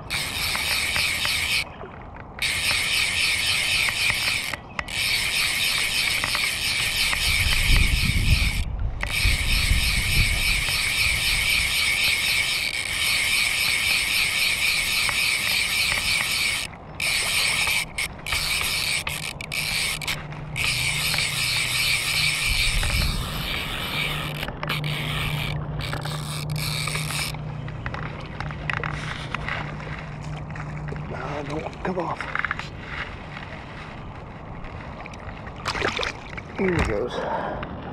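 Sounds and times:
fly reel buzzing: 0.0 - 1.7, 2.4 - 27.4.

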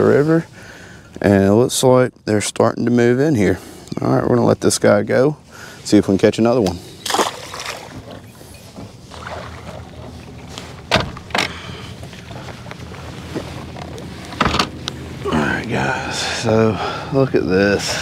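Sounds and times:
wind: 0.0 - 18.0
water lapping: 7.0 - 10.5.

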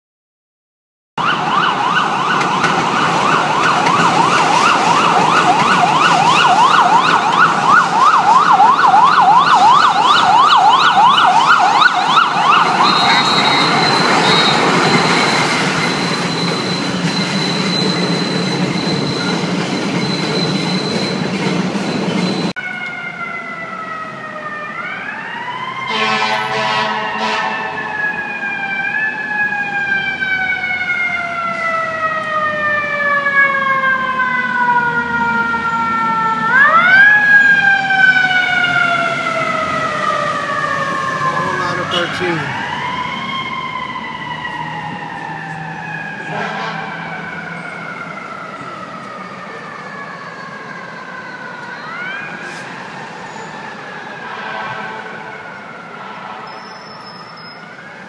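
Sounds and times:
siren falling in pitch: 1.2 - 16.9, 22.6 - 58.0
electronic siren yelping: 1.2 - 21.1, 22.6 - 58.0
short horn blasts: 25.9 - 27.8, 46.3 - 46.9.

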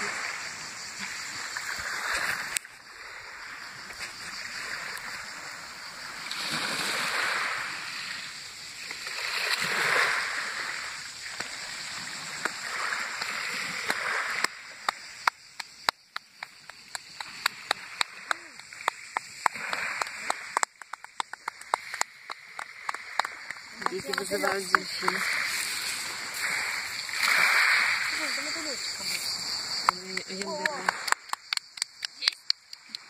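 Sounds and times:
waves washing on pebble beach: 6.3 - 15.8, 17.0 - 31.3.

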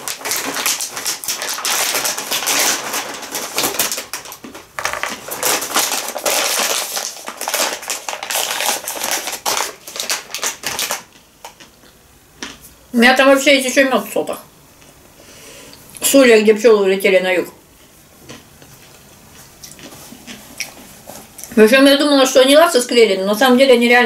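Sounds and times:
paper bag crinkling: 0.0 - 11.7.

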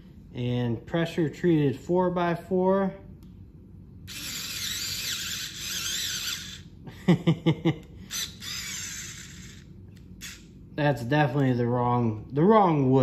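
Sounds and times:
cordless screwdriver whirring: 4.1 - 6.7, 8.1 - 10.5.

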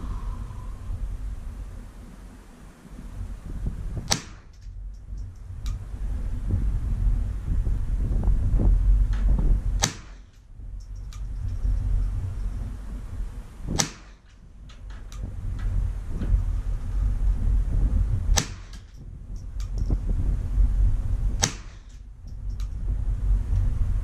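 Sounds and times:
wind rumbling on microphone: 0.0 - 24.0
rifle shots: 4.0 - 4.7, 9.8 - 10.5, 13.7 - 14.4, 18.3 - 19.0, 21.4 - 22.0.

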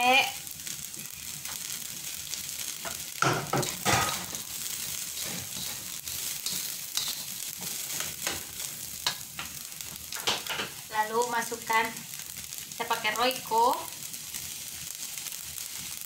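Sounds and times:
rice sizzling in a wok: 0.0 - 16.0
spatula scraping a pan: 0.6 - 10.8.

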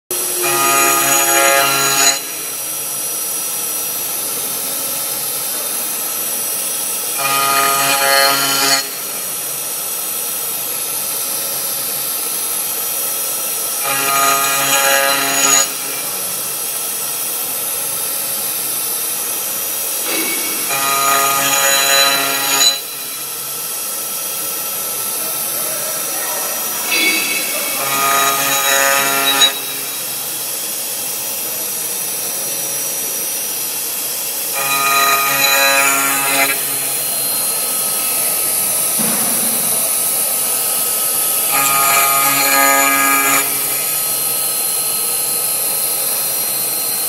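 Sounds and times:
router spindle whining: 0.1 - 6.3, 7.0 - 47.0
cutter buzzing through metal: 0.1 - 47.0.

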